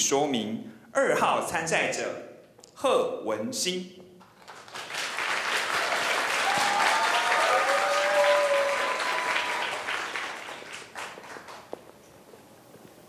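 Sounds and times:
audience applauding in a hall: 4.2s - 11.9s.

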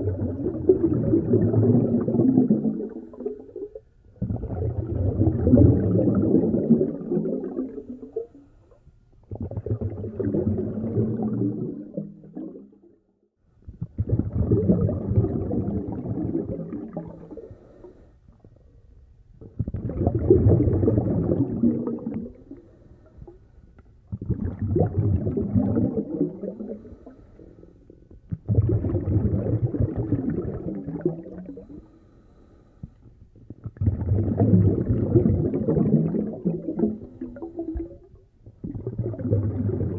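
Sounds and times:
snorkel breathing gurgle: 0.0s - 8.5s, 9.3s - 12.6s, 13.8s - 18.7s, 19.4s - 39.9s.

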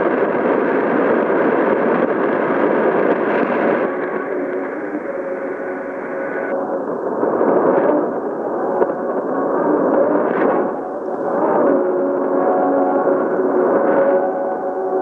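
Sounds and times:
radio static hiss: 0.0s - 15.0s.

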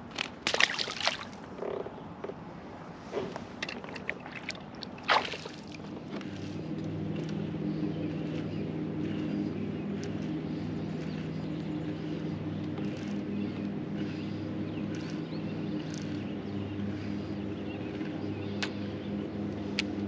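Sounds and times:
water sloshing against kayak: 0.4s - 1.9s, 3.1s - 6.4s
low mechanical whir: 1.4s - 20.0s.

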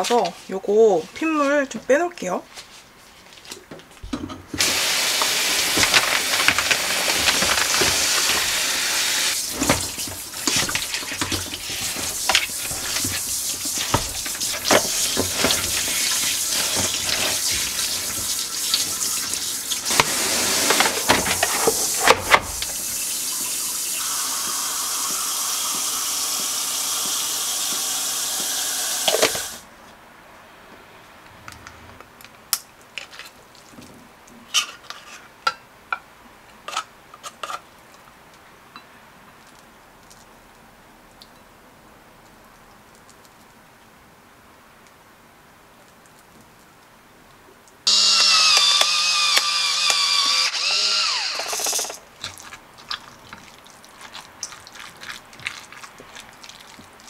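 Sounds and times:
water splashing: 9.3s - 21.2s.

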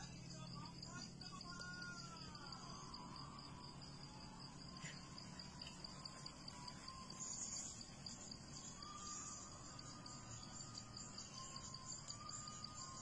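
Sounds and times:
insects chirping: 0.0s - 13.0s.

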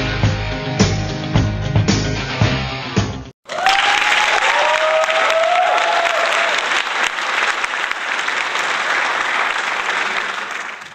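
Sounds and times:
audience applauding: 3.4s - 10.9s
audience whooping: 3.5s - 10.9s.

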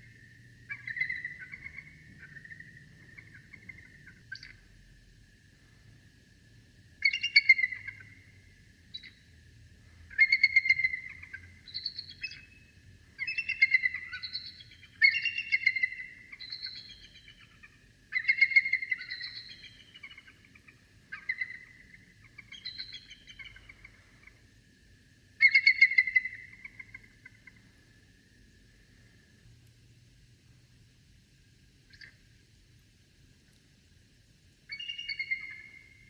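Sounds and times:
rapid pulsed high animal calls: 0.0s - 4.7s, 7.0s - 24.5s, 25.4s - 29.3s, 31.8s - 32.2s, 34.7s - 36.0s.

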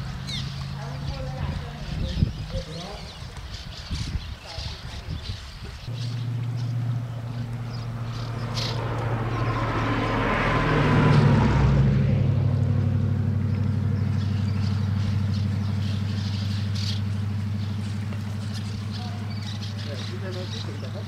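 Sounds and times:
engine running low: 0.0s - 21.0s
rushing swell: 5.9s - 13.4s.

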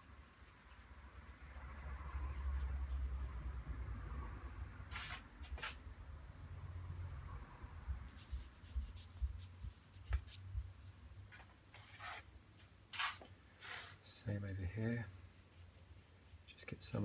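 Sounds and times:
brush strokes on paper: 0.0s - 3.6s, 8.0s - 12.3s, 12.9s - 14.2s.

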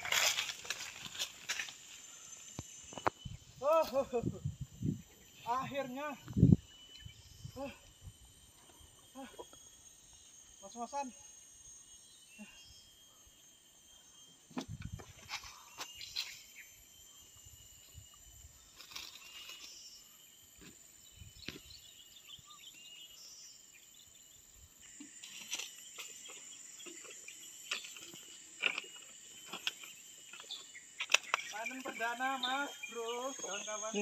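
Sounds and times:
insects droning: 0.0s - 34.0s.

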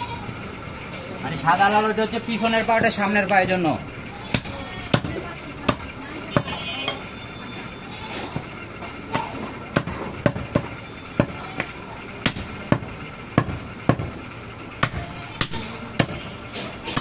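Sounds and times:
cleaver chopping meat: 9.1s - 11.4s, 12.2s - 14.1s, 14.8s - 16.2s.

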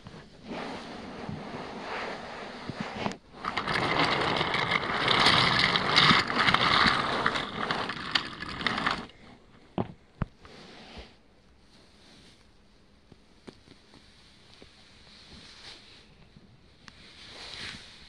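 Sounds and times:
toy train rattling on plastic track: 3.0s - 9.5s.

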